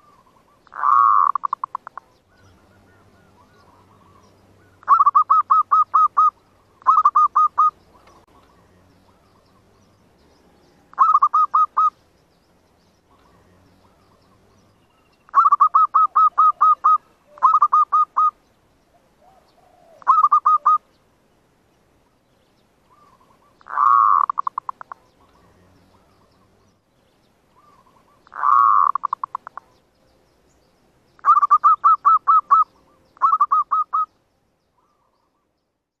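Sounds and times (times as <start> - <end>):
dove cooing: 0.0 - 9.9, 10.8 - 12.0, 13.1 - 20.8, 22.9 - 26.6, 27.6 - 29.8, 31.2 - 34.1.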